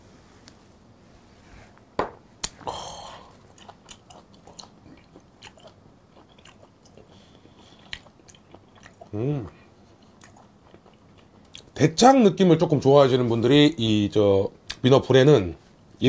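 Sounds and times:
wet chewing and lip smacks: 0:03.4 - 0:09.1, 0:09.9 - 0:11.7.

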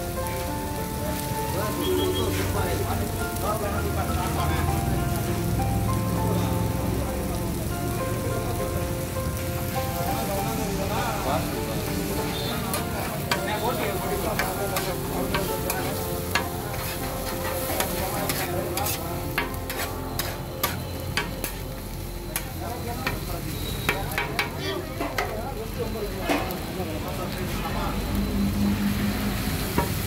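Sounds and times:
food sizzling on griddle: 0:00.0 - 0:30.0
metal spatulas scraping and chopping: 0:14.4 - 0:21.6.

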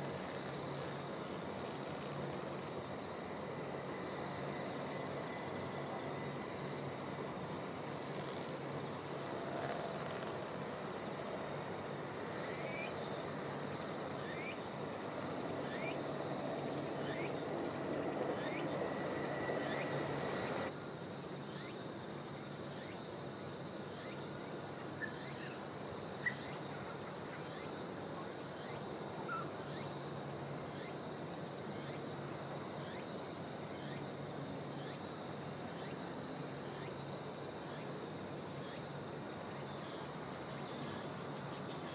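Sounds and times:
low rumble of distant noise: 0:00.0 - 0:20.7
insects chirring: 0:00.0 - 0:41.9.

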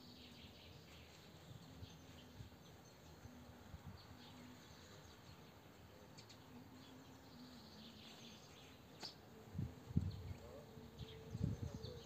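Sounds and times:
faint bird chirps: 0:10.0 - 0:12.0.

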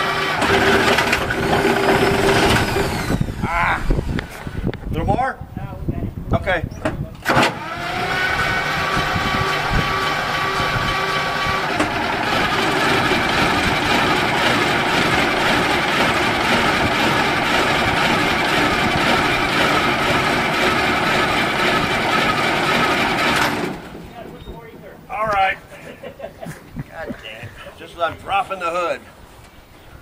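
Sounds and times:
truck engine running: 0:00.0 - 0:03.3, 0:07.5 - 0:25.0
steady whining tones: 0:00.0 - 0:04.7, 0:07.3 - 0:29.0.

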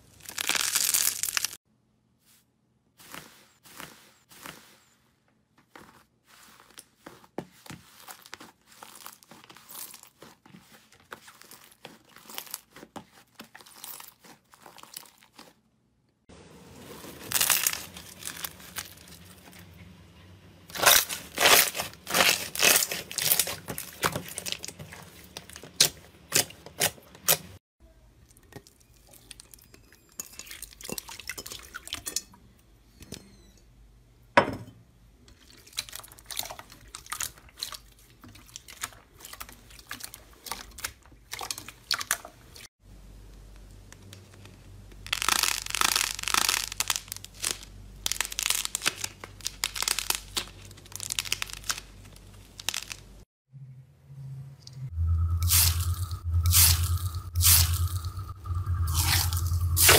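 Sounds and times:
slime crackling and popping: 0:00.0 - 0:01.6, 0:45.0 - 0:53.1.

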